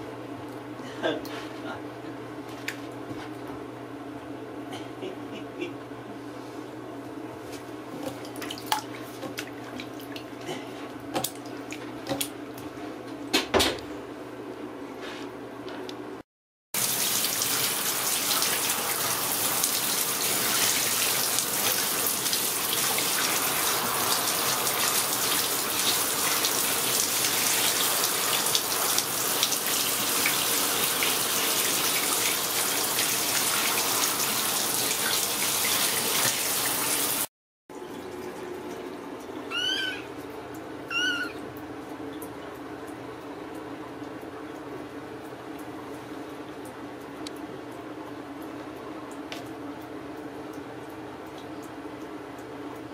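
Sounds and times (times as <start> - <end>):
shower water spraying: 16.8 - 37.3
kitten meowing: 39.5 - 40.1, 40.9 - 41.4.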